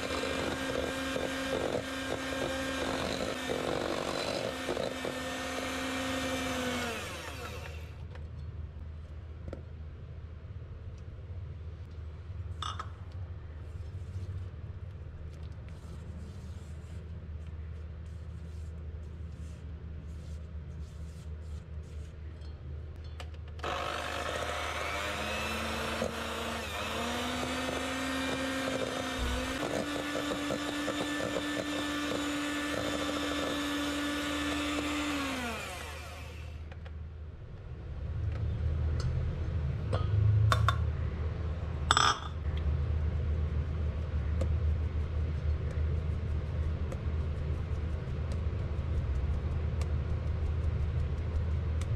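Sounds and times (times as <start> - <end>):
electric hand mixer whining: 0.0 - 7.9, 23.6 - 36.6.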